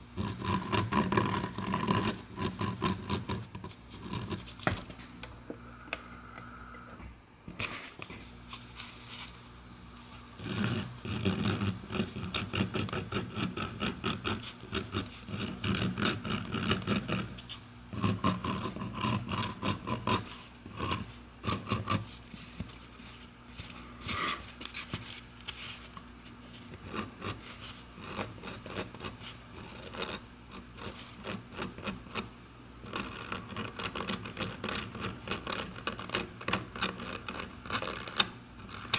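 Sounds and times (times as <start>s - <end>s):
rotary tool rasping into wood: 0.2s - 4.5s, 10.4s - 22.1s, 26.7s - 38.9s.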